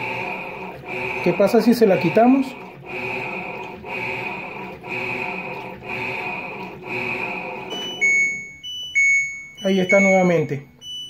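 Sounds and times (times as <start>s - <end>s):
washing machine pulsing: 0.0s - 11.0s
short high beeps: 7.7s - 11.0s.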